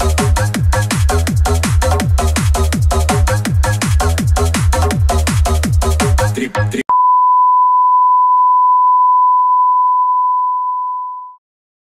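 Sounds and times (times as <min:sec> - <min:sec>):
electronic dance music: 0:00.0 - 0:06.8
long steady beep: 0:06.9 - 0:11.4.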